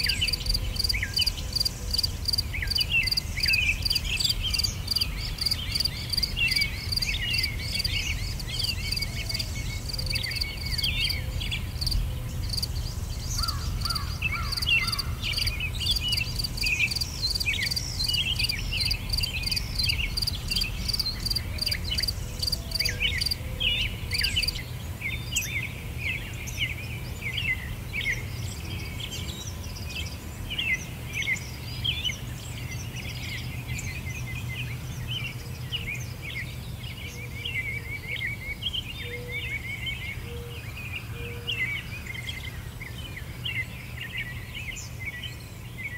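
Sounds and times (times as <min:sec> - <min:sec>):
crickets chirping: 0:00.0 - 0:24.6
small birds twittering: 0:00.0 - 0:45.9.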